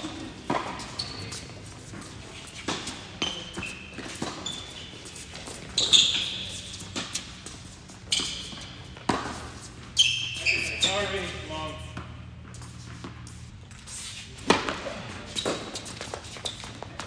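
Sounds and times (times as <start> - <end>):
shoe squeaks on court: 0.0 - 12.0, 12.6 - 17.0
tennis ball bouncing: 0.1 - 0.9, 6.8 - 10.4, 14.4 - 16.3
racket hitting tennis ball: 8.2 - 10.0, 14.4 - 16.2.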